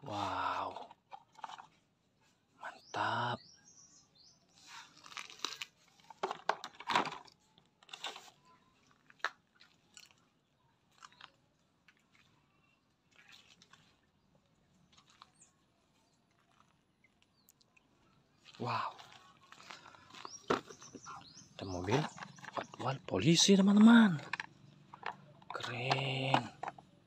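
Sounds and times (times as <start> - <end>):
footsteps crunching on gravel: 18.5 - 22.9.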